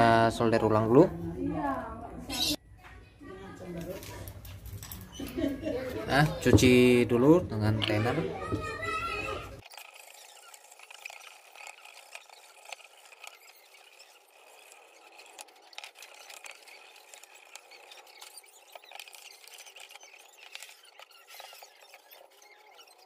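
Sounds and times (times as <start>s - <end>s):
small irregular clicks: 9.6s - 23.0s
toothbrush scrubbing circuit board: 9.6s - 23.0s.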